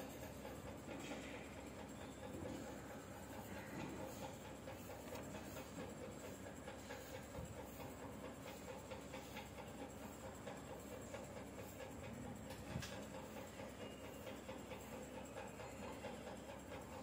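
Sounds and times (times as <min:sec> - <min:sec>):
low background hum: 0:00.0 - 0:17.0
pencil scratching on paper: 0:02.5 - 0:13.5.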